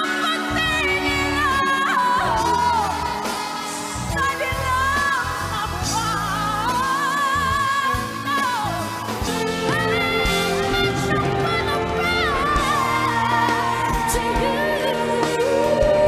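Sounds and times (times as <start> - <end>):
backing music: 0.0 - 16.0
soprano singing with vibrato: 0.0 - 16.0.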